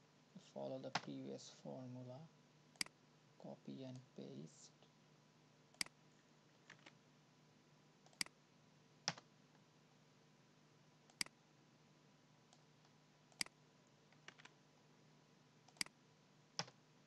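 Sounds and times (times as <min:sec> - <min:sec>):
faint steady hum: 0:00.0 - 0:17.0
computer mouse clicks: 0:02.8 - 0:03.0, 0:05.7 - 0:06.0, 0:08.0 - 0:08.4, 0:11.1 - 0:11.4, 0:12.5 - 0:14.6, 0:15.7 - 0:16.0.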